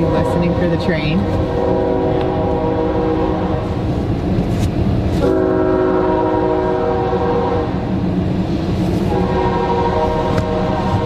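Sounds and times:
train horn blasts: 0.0 - 3.8, 5.2 - 7.9, 9.0 - 11.0.

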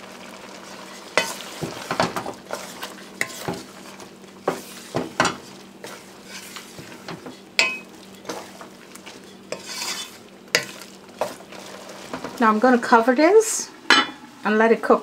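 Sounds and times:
low hiss from cooking pot: 0.0 - 15.0
spoon knocking and scraping pot: 1.2 - 3.7, 4.4 - 11.4.

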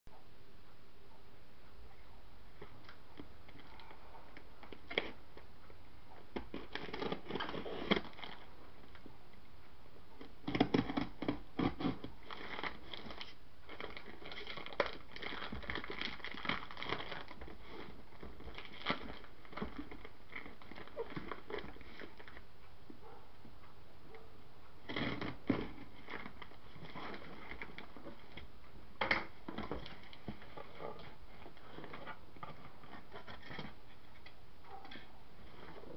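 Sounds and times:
paper crinkling and tearing: 6.5 - 8.5, 10.5 - 22.4.

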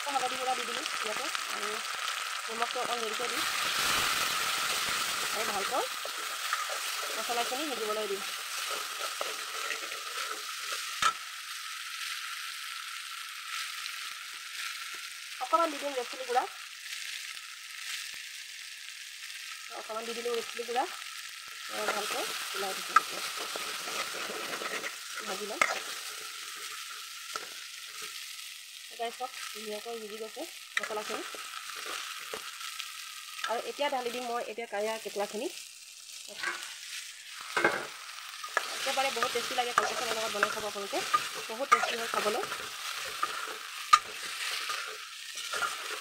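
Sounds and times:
masala sizzling in hot oil: 0.0 - 46.0
metal spoon scraping pan: 4.7 - 11.2, 21.8 - 28.1, 37.4 - 46.0.

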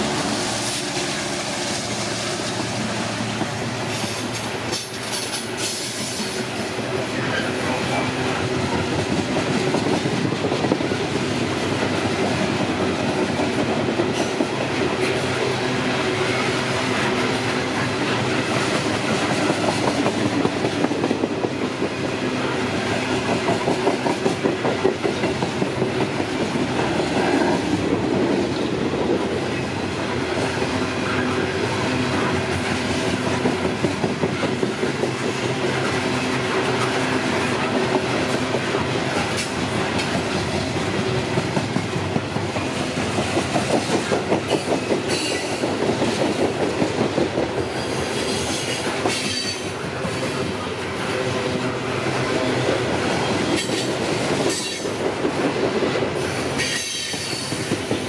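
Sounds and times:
steel wheels rumbling on rail: 0.0 - 58.0
wheels clacking over rail joints: 22.9 - 50.4.

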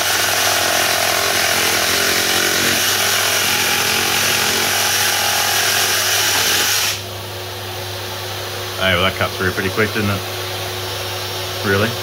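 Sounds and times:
reciprocating saw cutting wood: 0.0 - 7.0.

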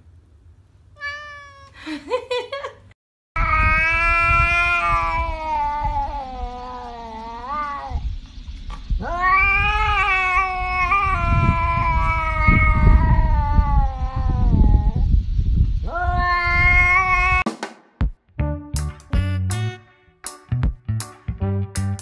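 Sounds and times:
cat yowling: 1.0 - 1.8, 3.4 - 8.1, 9.0 - 15.1, 15.8 - 17.5.

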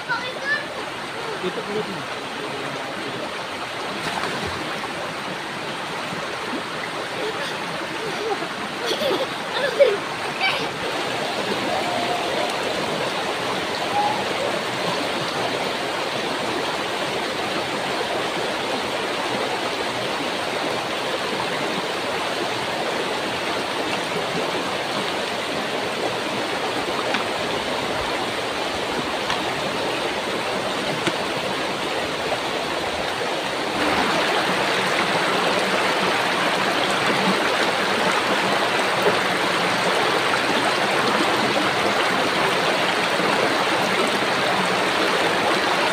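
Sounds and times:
river rippling over stones: 0.0 - 45.9.

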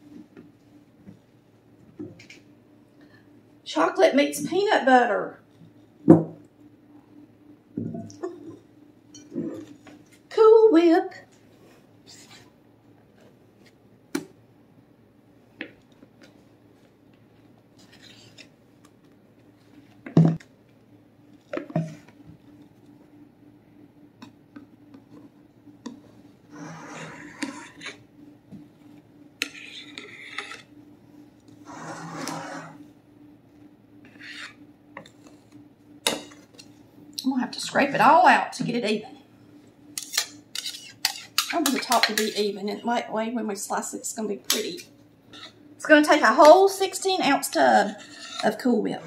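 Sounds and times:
faint steady hum: 0.0 - 49.0
metal spatula scraping: 12.1 - 12.5, 26.5 - 28.0, 29.4 - 30.7, 31.6 - 32.8, 34.0 - 34.6, 40.0 - 42.7, 44.5 - 45.6, 47.2 - 49.0.

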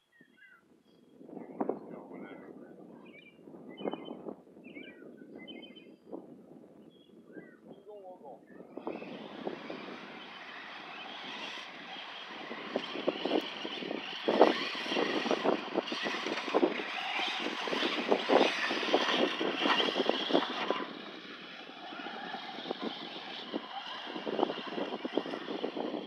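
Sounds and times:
rc truck motor whining: 8.6 - 26.0
tyres churning dirt with knocks: 8.8 - 26.0.

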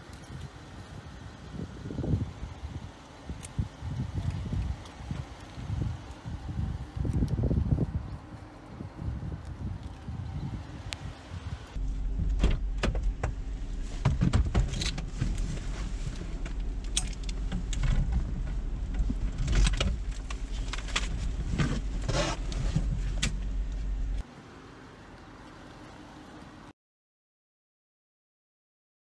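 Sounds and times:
car interior low hum: 0.0 - 26.7
clicks and clatter of gear: 14.0 - 23.4.

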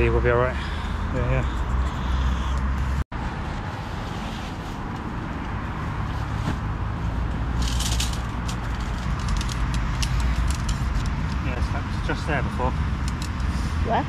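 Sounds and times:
road traffic rumble: 0.0 - 14.0
tent rustling: 3.7 - 5.0.

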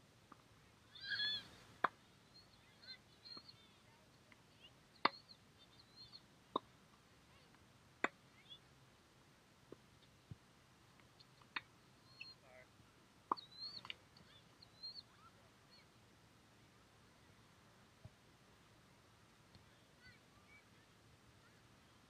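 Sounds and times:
bird chirps: 0.9 - 1.6, 2.2 - 6.2, 12.0 - 12.6, 13.3 - 15.9
tennis balls hit and bouncing: 6.5 - 6.7, 7.5 - 8.2.

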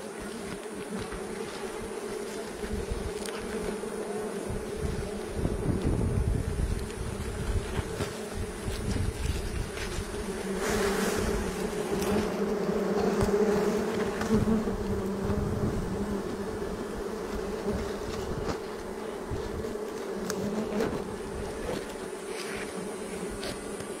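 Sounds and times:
bees buzzing: 0.0 - 24.0.

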